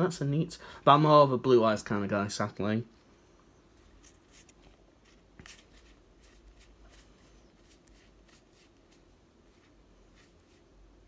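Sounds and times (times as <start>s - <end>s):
cards sliding and flicking: 3.9s - 10.7s.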